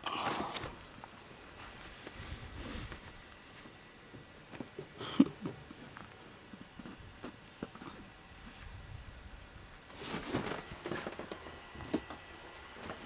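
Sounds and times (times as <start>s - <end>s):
handling rustling and taps: 2.9s - 8.6s.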